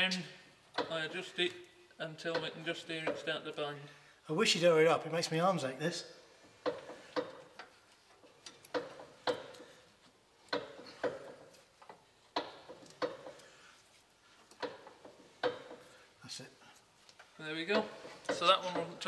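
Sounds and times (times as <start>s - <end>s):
sharp clicks of spanner adjusting brake: 6.5s - 13.6s, 14.4s - 16.1s.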